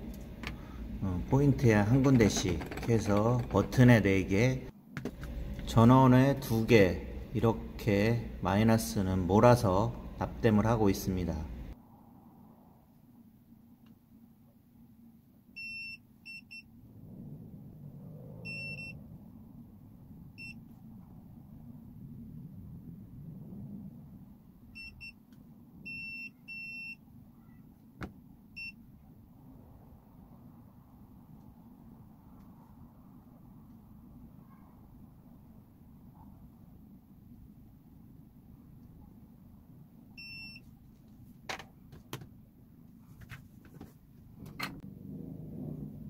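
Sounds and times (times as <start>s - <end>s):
probes clicking and knocking: 2.0s - 4.0s
multimeter continuity beeps: 15.6s - 16.7s, 18.5s - 19.0s, 24.8s - 25.2s, 25.9s - 27.0s, 40.2s - 40.6s.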